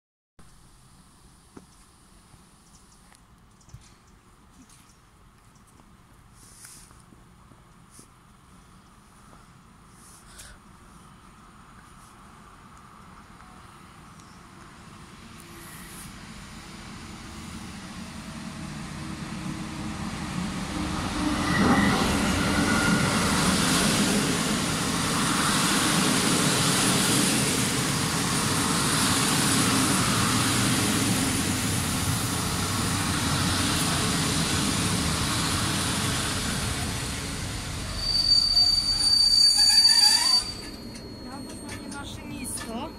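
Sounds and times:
train rumble: 0:00.5 - 0:42.9
high squeal: 0:21.1 - 0:23.6, 0:37.7 - 0:42.9.

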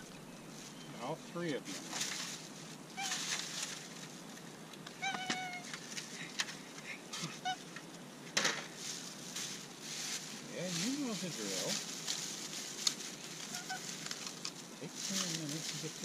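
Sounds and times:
plastic bag rustling: 0:01.5 - 0:04.4, 0:08.5 - 0:16.0
cat meowing: 0:05.0 - 0:05.7.

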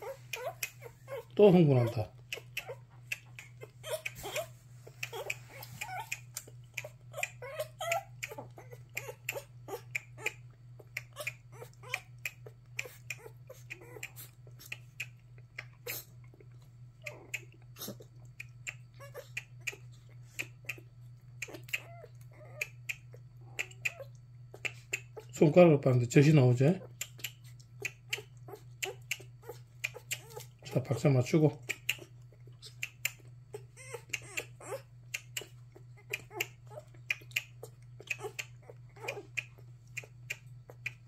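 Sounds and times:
puppy squeaks: 0:00.0 - 0:10.4, 0:19.0 - 0:19.3, 0:21.4 - 0:22.6, 0:28.0 - 0:30.5, 0:31.7 - 0:35.4, 0:36.0 - 0:39.4
puppy suckling from bottle: 0:00.0 - 0:25.4, 0:26.8 - 0:41.0.

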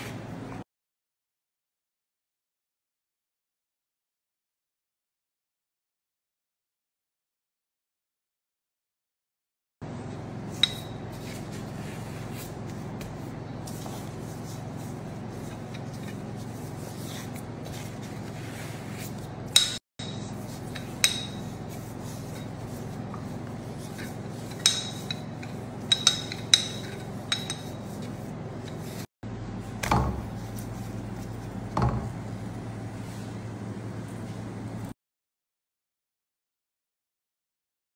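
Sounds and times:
steady low hum: 0:09.8 - 0:34.9
utensils knocking on wooden board: 0:23.9 - 0:29.0.

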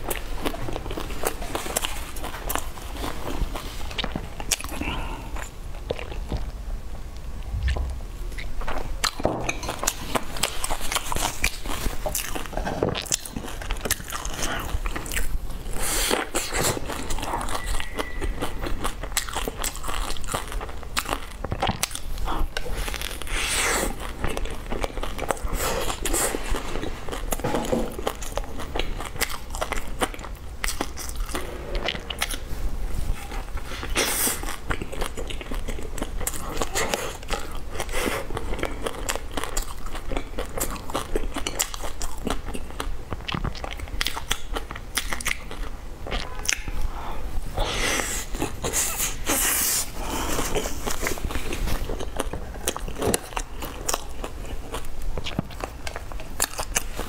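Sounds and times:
person chewing bread: 0:00.0 - 0:06.6, 0:07.2 - 0:57.0
crackly clicks while chewing: 0:08.4 - 0:23.3, 0:23.9 - 0:27.4, 0:28.0 - 0:32.5, 0:34.4 - 0:46.8, 0:50.8 - 0:57.0.

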